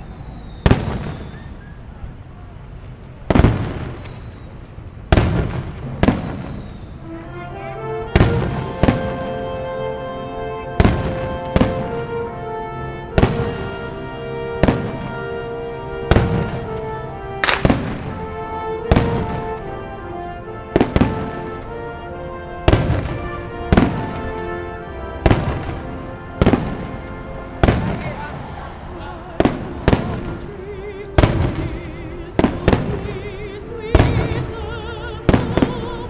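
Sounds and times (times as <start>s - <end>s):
music with long held tones: 5.4s - 36.0s
firework shells bursting: 16.1s - 18.3s.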